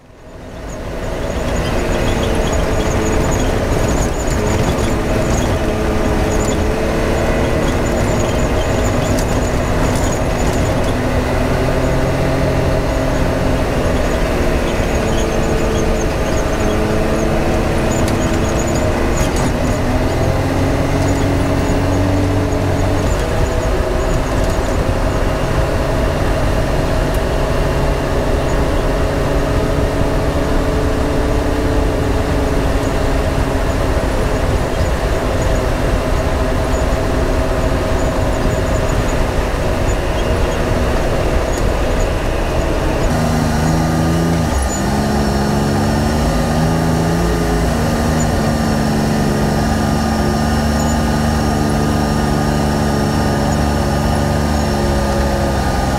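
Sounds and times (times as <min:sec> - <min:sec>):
vehicle engine running: 0:00.0 - 0:55.9.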